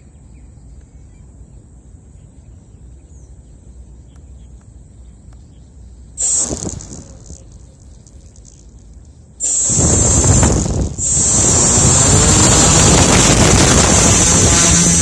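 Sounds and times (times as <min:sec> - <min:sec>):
bird chirps: 0:00.0 - 0:10.3
insects chirring: 0:00.0 - 0:15.0
loud rushing noise: 0:09.4 - 0:15.0.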